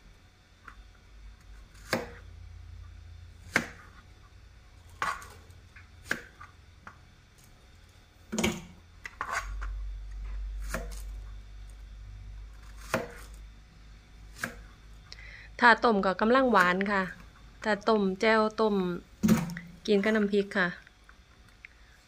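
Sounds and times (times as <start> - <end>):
knife cutting on plastic board: 1.7 - 2.2, 3.4 - 4.0, 4.9 - 6.6, 9.0 - 9.7, 12.6 - 13.4.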